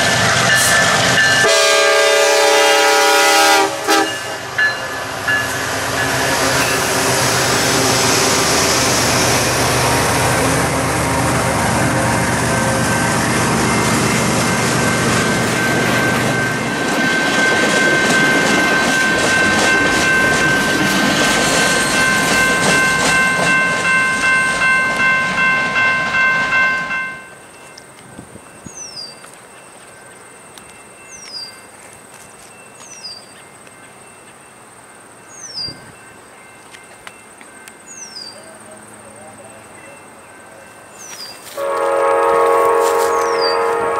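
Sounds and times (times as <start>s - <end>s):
diesel locomotive engine running: 0.0s - 26.9s
high tones from train wheels: 0.0s - 43.9s
freight cars clickety-clack: 9.8s - 25.0s
bird chirping: 28.4s - 34.6s, 35.2s - 38.5s, 40.8s - 41.5s, 43.2s - 43.7s.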